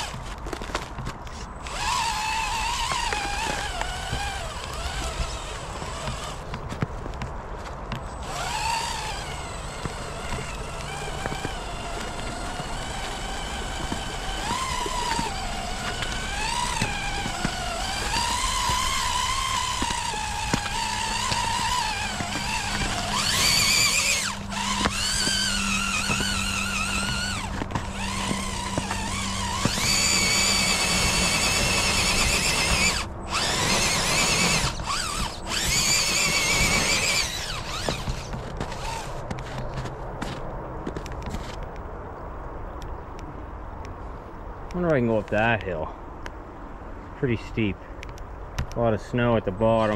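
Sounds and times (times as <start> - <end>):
toy car electric motor whining: 0.0 - 7.2, 8.0 - 40.4.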